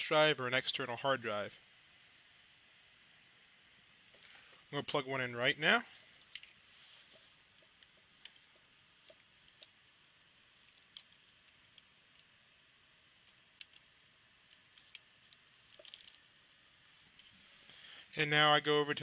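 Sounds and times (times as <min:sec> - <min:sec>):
faint clicks and taps: 0:06.2 - 0:09.9, 0:10.6 - 0:12.4, 0:13.2 - 0:16.4.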